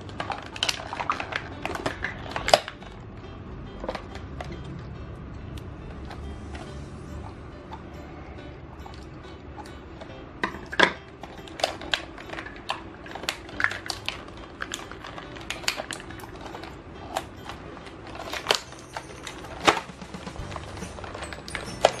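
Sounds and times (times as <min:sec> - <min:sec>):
plastic packaging crackling: 0:00.0 - 0:03.0, 0:10.4 - 0:22.0.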